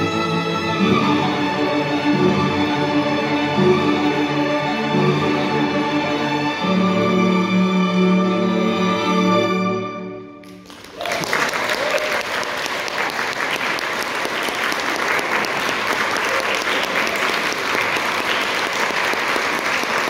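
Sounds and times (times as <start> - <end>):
audience applause: 10.4 - 20.0.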